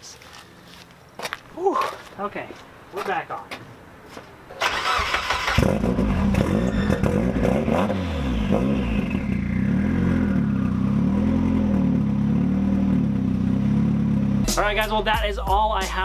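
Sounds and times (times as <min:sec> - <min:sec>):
car engine starting and idling: 0:04.5 - 0:14.4.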